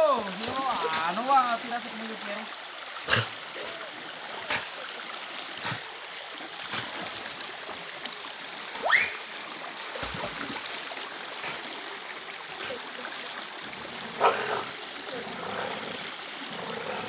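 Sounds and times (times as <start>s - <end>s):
creek water running over rock: 0.0s - 17.0s
water splashes: 0.0s - 17.0s
rising whistle-like call: 8.8s - 9.2s.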